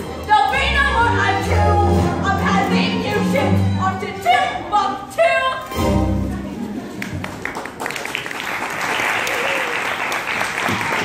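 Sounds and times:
musical theatre singing: 0.0s - 7.3s
audience applause: 6.9s - 11.0s.

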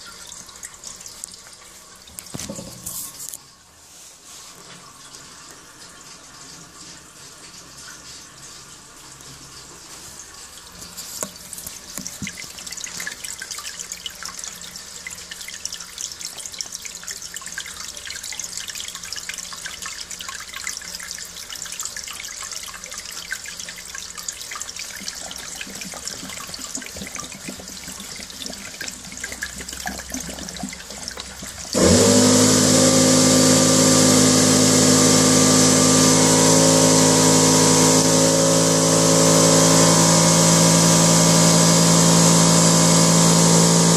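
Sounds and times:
water splashing into toilet bowl: 4.9s - 43.9s
pump motor humming: 8.5s - 43.9s.

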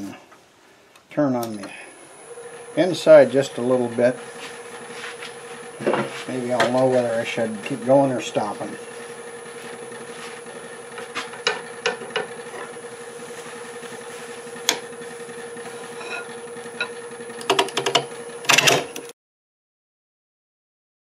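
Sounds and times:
wood lathe humming and whining: 1.4s - 19.1s
turning tool clicks and taps: 16.8s - 18.6s.

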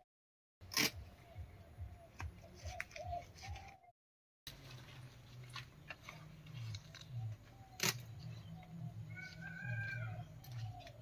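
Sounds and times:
plant stem snapping: 6.7s - 8.1s.

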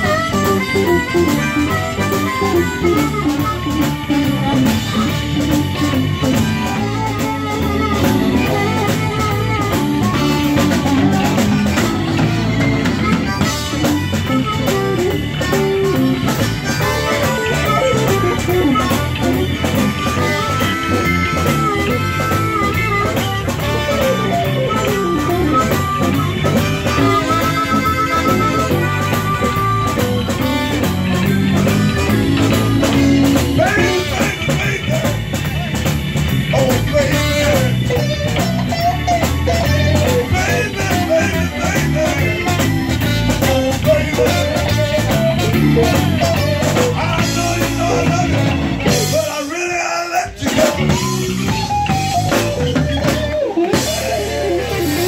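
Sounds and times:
amplified harmonica: 0.0s - 49.6s, 50.5s - 55.0s
drum kit: 0.0s - 49.7s, 50.3s - 55.0s
bass guitar: 0.0s - 55.0s
electric guitar: 0.0s - 55.0s.

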